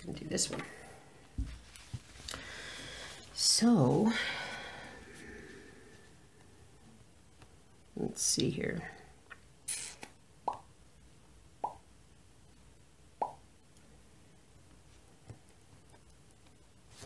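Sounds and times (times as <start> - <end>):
short hiss: 9.7 - 10.1.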